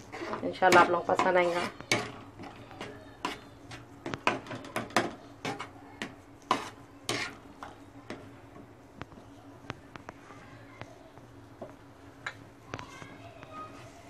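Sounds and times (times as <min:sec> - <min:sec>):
metal spatula scraping on metal griddle: 0:00.0 - 0:05.7, 0:06.5 - 0:07.4.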